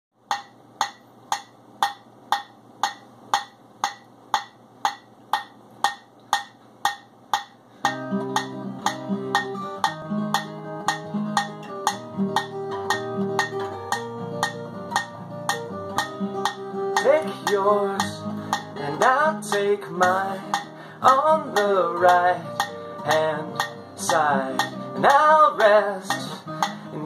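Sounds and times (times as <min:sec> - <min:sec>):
spatula drumming on metal pot: 0:00.3 - 0:27.0
guitar playing notes: 0:07.8 - 0:27.0.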